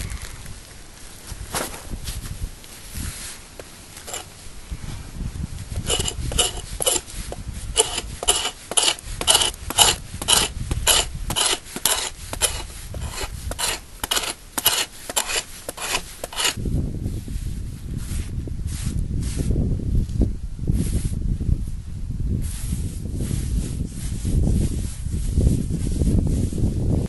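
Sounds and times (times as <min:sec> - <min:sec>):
rhythmic hand scraping: 0:04.1 - 0:04.3, 0:05.8 - 0:16.6.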